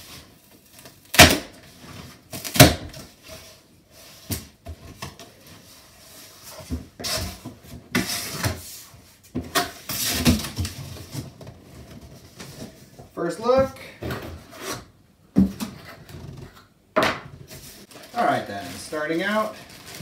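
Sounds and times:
cardboard flaps scraping: 0:17.4 - 0:20.0.

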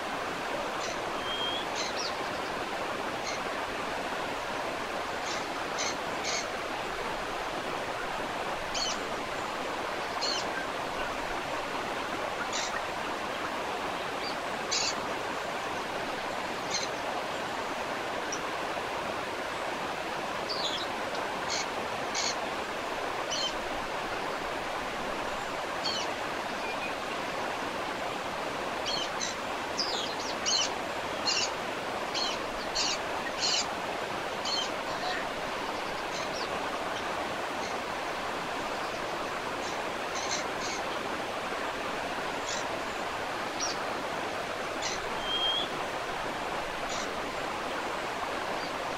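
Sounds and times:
waterfall rushing: 0:00.0 - 0:48.9
high bird calls: 0:00.8 - 0:02.2, 0:44.8 - 0:45.7.

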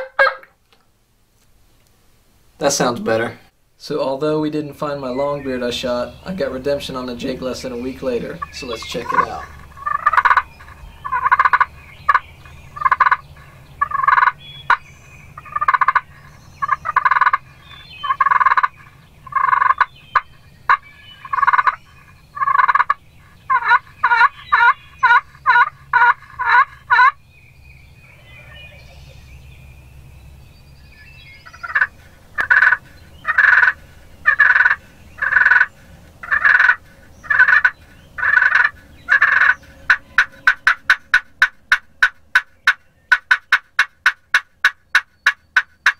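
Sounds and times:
turkey yelping: 0:00.0 - 0:00.5, 0:07.7 - 0:14.8, 0:15.4 - 0:27.2, 0:28.0 - 0:29.2, 0:31.4 - 0:45.9.

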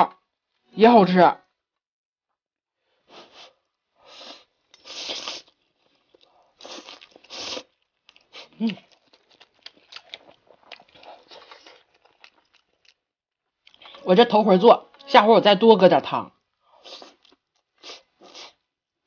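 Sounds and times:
person slurping noodles: 0:04.1 - 0:05.6, 0:06.6 - 0:07.7
wet chewing smacks: 0:04.7 - 0:13.0.

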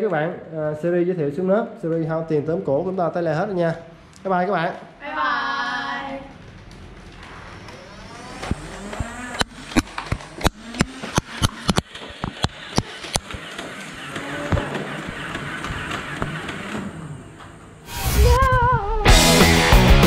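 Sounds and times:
sharp clicks and knocks: 0:08.4 - 0:17.6
loud wavering tone: 0:17.8 - 0:19.3
music: 0:18.0 - 0:20.0.

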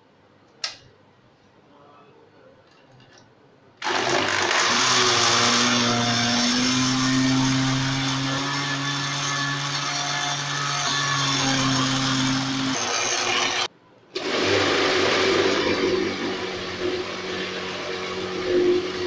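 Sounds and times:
blender motor running: 0:03.8 - 0:19.0.

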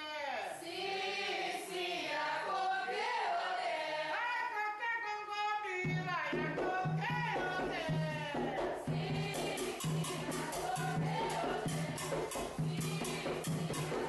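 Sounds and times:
group of voices chanting: 0:00.4 - 0:04.2, 0:08.9 - 0:14.0
low regular drum beat: 0:05.9 - 0:14.0.

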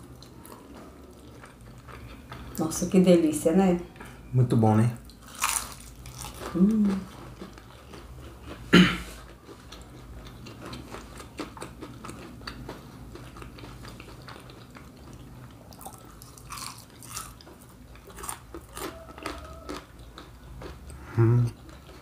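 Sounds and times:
wet chewing: 0:00.0 - 0:02.6, 0:05.0 - 0:22.0.

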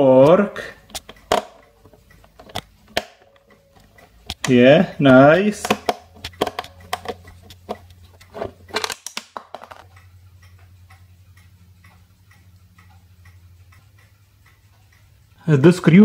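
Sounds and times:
faint regular ticking: 0:00.0 - 0:16.0
low steady hum: 0:00.0 - 0:16.0
screwdriver clicking and scraping: 0:05.6 - 0:09.9.

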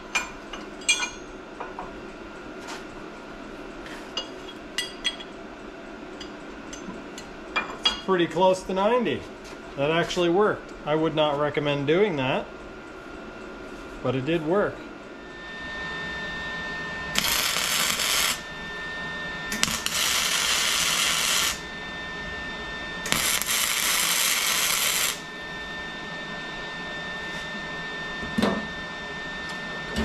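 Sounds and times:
steady high-pitched whine: 0:00.0 - 0:30.0
welder arc crackling: 0:17.1 - 0:18.6, 0:19.5 - 0:21.7, 0:23.1 - 0:25.3.

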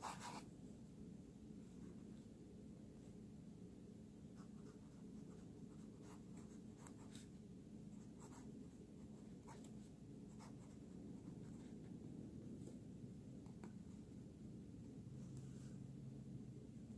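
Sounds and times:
fountain pen scratching paper: 0:00.0 - 0:00.4
low steady hum: 0:00.0 - 0:16.9.

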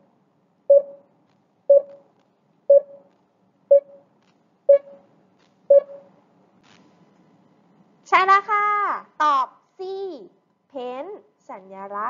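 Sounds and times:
short timer beeps: 0:00.7 - 0:01.0, 0:01.7 - 0:02.0, 0:02.7 - 0:03.0, 0:03.7 - 0:04.0, 0:04.7 - 0:05.0, 0:05.7 - 0:06.1.

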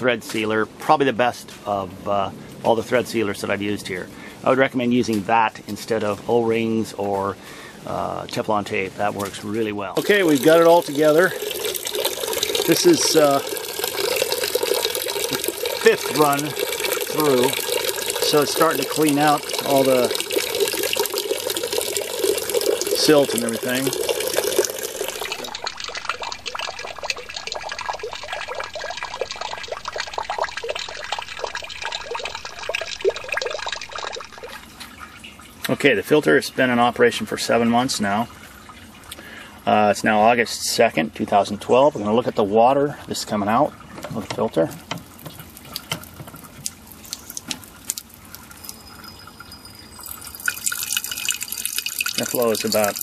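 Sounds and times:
water trickling and dripping: 0:02.3 - 0:53.0.

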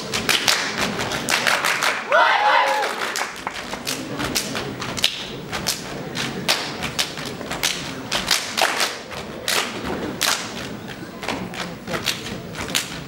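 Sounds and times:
body slapping and clapping: 0:00.2 - 0:02.0.

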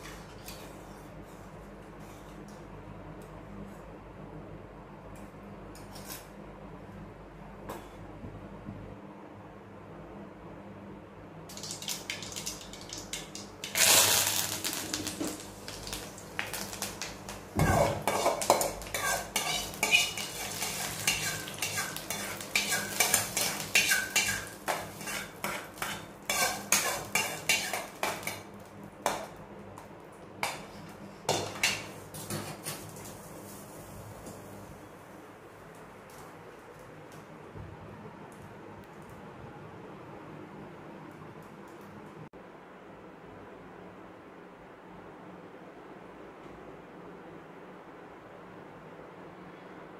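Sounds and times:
steel spoon scraping a pan: 0:13.6 - 0:15.4, 0:17.6 - 0:28.5.

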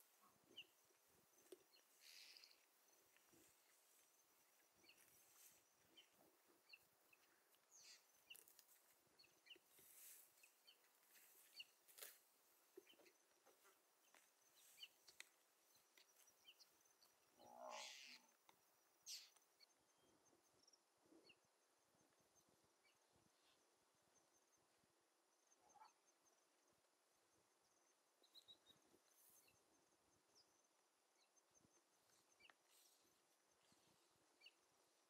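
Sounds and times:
animal call: 0:17.4 - 0:18.3.

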